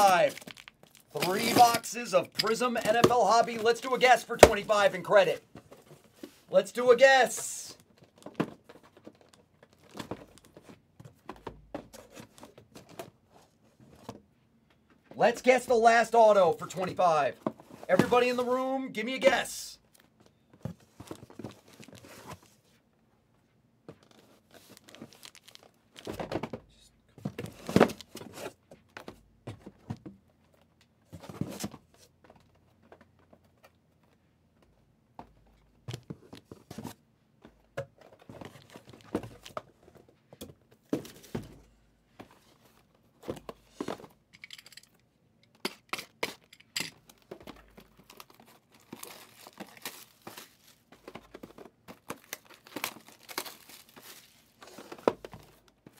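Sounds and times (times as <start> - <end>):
wrapper tearing and crinkling: 0.0 - 1.7, 24.7 - 25.8, 48.1 - 50.8, 52.1 - 54.5.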